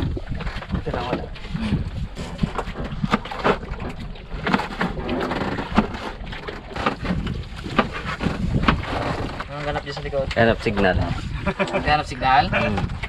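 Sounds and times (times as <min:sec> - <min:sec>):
steady low rumble: 0:00.0 - 0:09.5.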